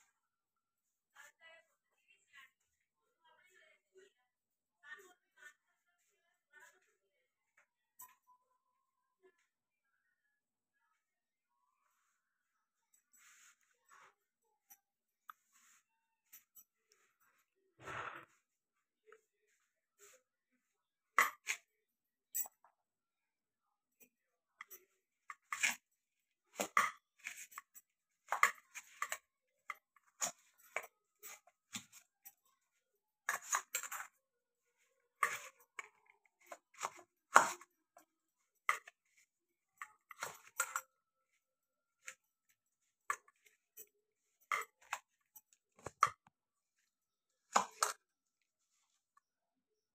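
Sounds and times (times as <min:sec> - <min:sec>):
utensil stirring in steel bowl: 0:24.6 - 0:46.8.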